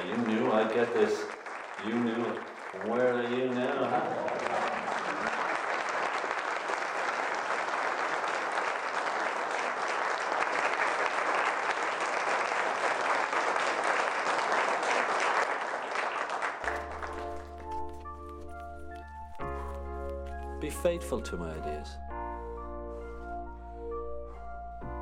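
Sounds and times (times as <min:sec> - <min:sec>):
crowd applause: 0:00.0 - 0:21.6
music with sustained notes: 0:16.6 - 0:25.0.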